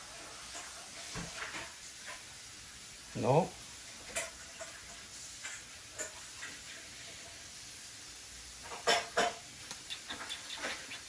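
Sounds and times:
parrots chirping: 9.7s - 11.0s
parrot squeaks: 9.8s - 11.0s.

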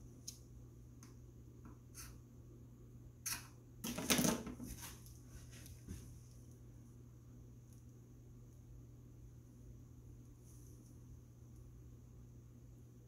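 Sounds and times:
steady low hum: 0.0s - 3.9s, 4.6s - 13.0s.

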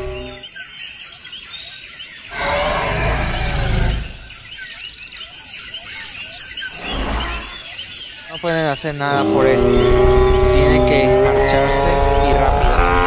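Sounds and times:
birds chirping: 0.0s - 13.0s
deep rough animal roar: 2.3s - 4.4s, 9.2s - 13.0s.

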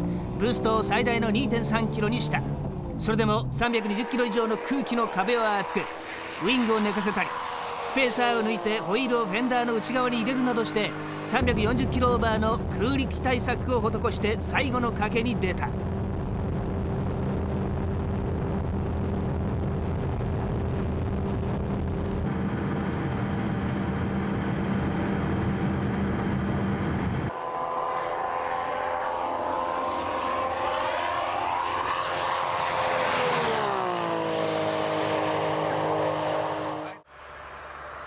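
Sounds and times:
car engine high-speed drone: 0.0s - 38.0s
car passing by: 27.3s - 38.0s.

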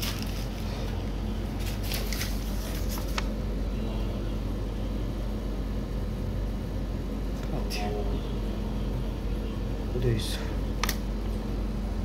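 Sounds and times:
paper bill rustling: 0.0s - 0.8s, 1.6s - 3.3s
steady low hum: 0.0s - 12.0s.

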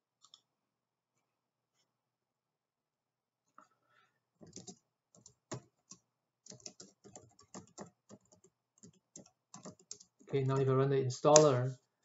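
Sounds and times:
typing on computer keyboard: 4.4s - 10.6s.

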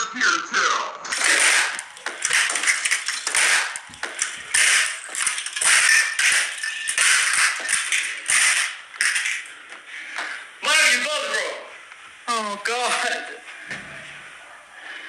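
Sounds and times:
broken ornaments crunching on tile: 1.1s - 10.4s.

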